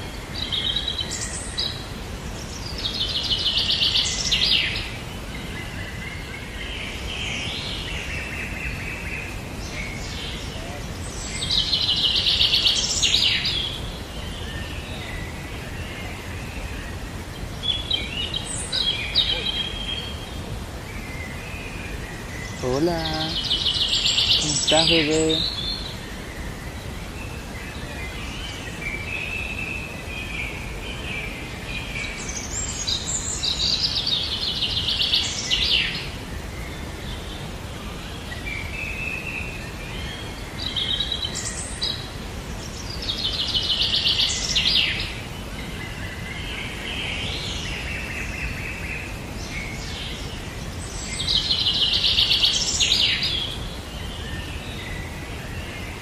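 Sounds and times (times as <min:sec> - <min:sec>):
steady background hiss: 0:00.0 - 0:56.0
bird chirps: 0:21.0 - 0:26.8.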